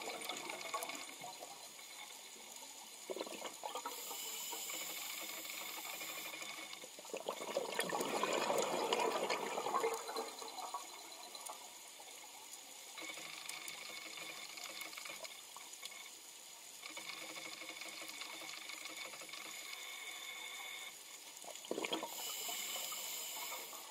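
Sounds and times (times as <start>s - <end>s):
underwater hiss: 0.0s - 11.9s, 21.7s - 23.9s.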